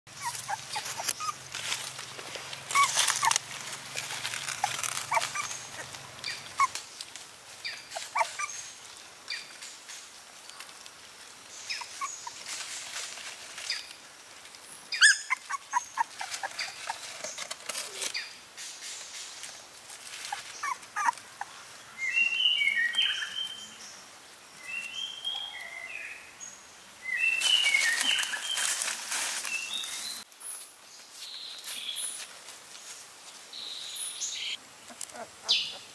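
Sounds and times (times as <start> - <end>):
puppies whimpering: 0.1 - 1.4, 2.7 - 3.4, 4.5 - 6.8, 7.9 - 8.6, 15.0 - 17.0, 20.3 - 21.5, 34.9 - 35.9
leaf litter rustling: 0.1 - 18.3, 18.9 - 21.4, 27.0 - 33.9.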